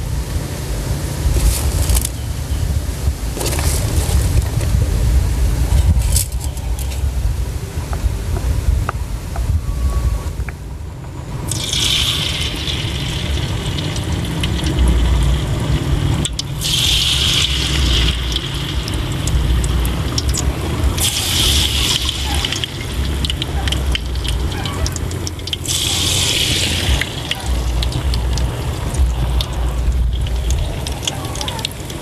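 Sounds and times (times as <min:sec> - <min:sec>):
low rumble: 0:00.0 - 0:32.0
food deep-frying in oil: 0:01.2 - 0:04.8, 0:11.4 - 0:32.0.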